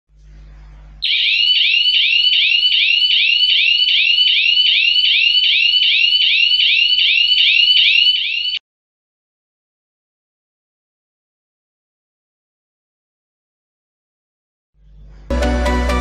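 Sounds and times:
high-pitched alarm siren whooping: 1.0 - 8.6.

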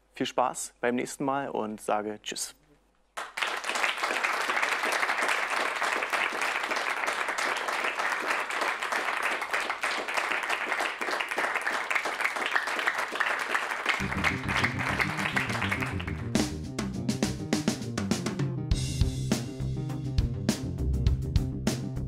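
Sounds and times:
audience clapping: 3.2 - 16.6
music with drum beat: 14.0 - 22.0.

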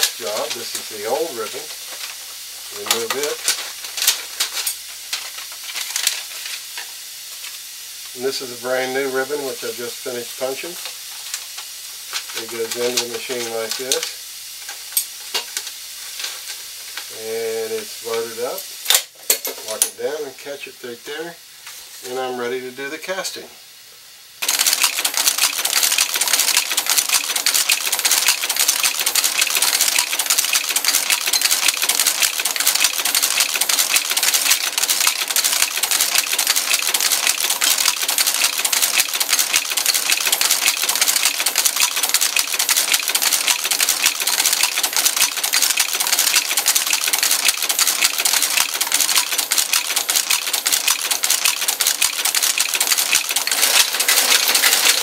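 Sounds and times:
type caster clattering: 2.8 - 6.3, 12.1 - 15.6, 24.4 - 55.0.

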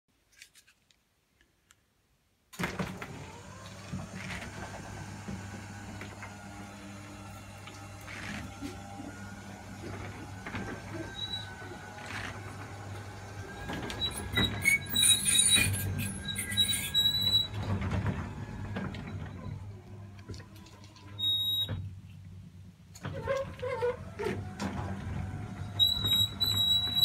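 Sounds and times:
garage door rattling open: 7.8 - 19.8
high-pitched squeals: 13.9 - 17.6.

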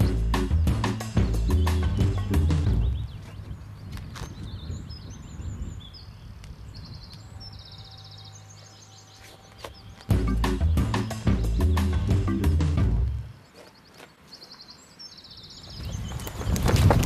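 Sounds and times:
loud music: 0.0 - 2.9, 10.1 - 13.1
small birds chirping: 0.0 - 17.0.

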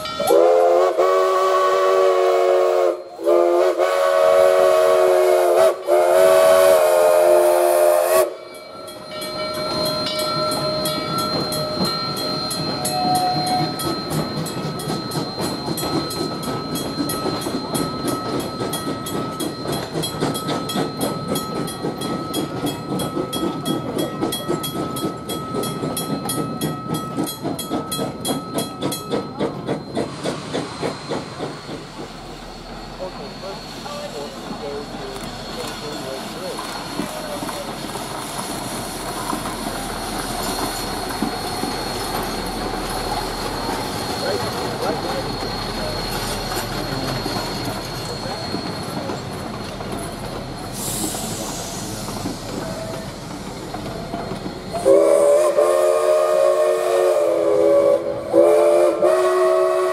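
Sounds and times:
steam locomotive chime whistle: 0.0 - 37.8, 39.7 - 59.9
train wheels clicking: 0.0 - 59.9
hiss of steam: 29.8 - 59.9.

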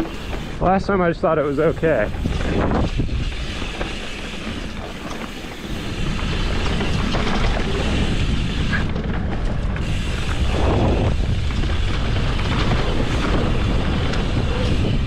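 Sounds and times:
bike clicks and rattles: 0.0 - 15.0
bike tyres rumbling on dirt: 0.0 - 15.0
wind buffeting microphone: 0.0 - 15.0.

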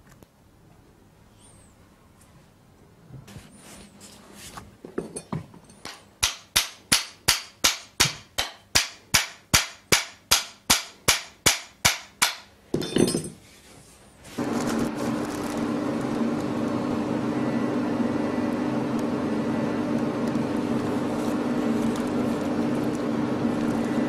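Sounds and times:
hammer striking metal: 5.9 - 13.3.

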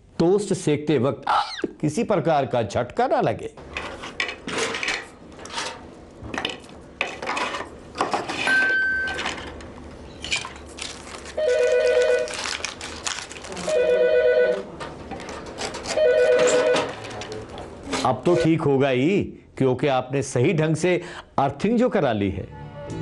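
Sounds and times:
telephone ringing: 11.4 - 12.3, 13.7 - 14.7, 15.9 - 17.0.

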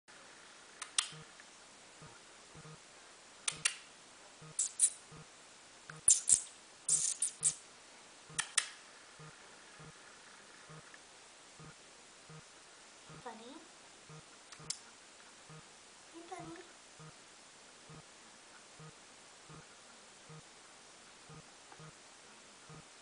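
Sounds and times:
person making kissing squeaks: 4.5 - 5.0, 5.9 - 7.6.

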